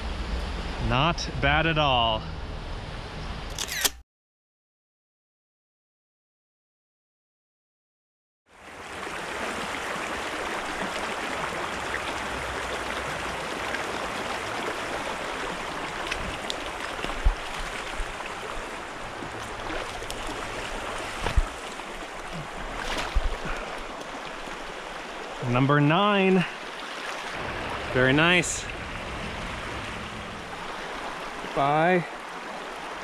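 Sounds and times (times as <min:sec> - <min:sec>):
creek water rushing over rocks: 0:08.5 - 0:33.0.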